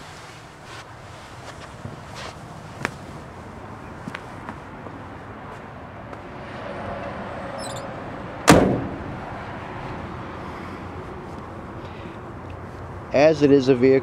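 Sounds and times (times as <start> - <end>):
loud thump: 8.5 - 9.2.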